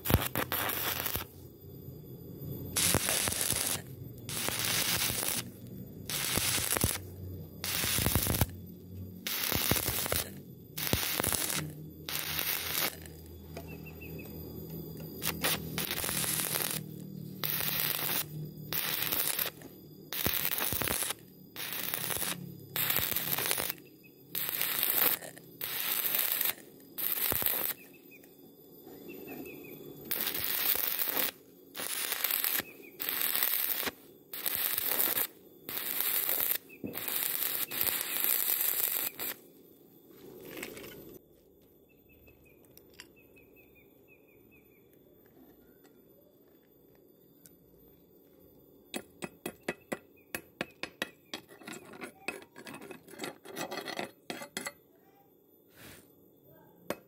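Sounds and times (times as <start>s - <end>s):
welding arc crackling and hissing: 0.0s - 1.4s, 2.7s - 8.6s, 9.2s - 13.6s, 14.9s - 27.9s, 30.0s - 39.4s.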